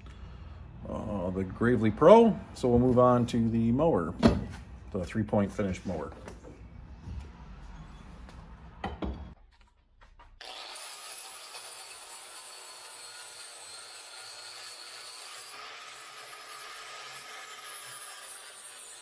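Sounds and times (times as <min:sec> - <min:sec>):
knocks: 0:08.8 - 0:09.4
angle grinder grinding steel: 0:10.4 - 0:19.0.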